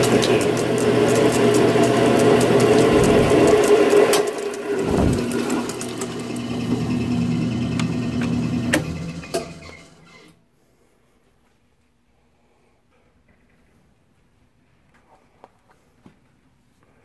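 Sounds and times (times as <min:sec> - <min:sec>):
drill press cutting steel: 0:00.0 - 0:10.3.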